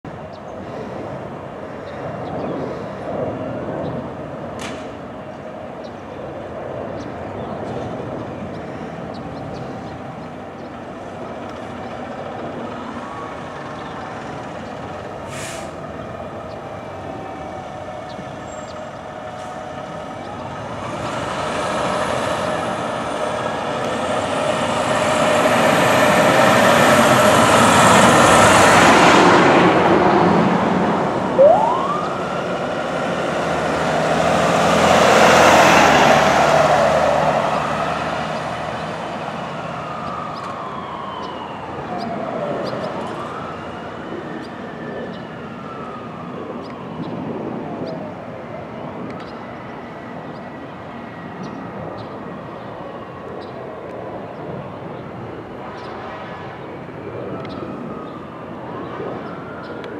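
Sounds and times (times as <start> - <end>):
diesel fire engine running: 7.2 - 47.0
air brake hisses: 15.3 - 15.8
siren winding up: 31.3 - 32.6.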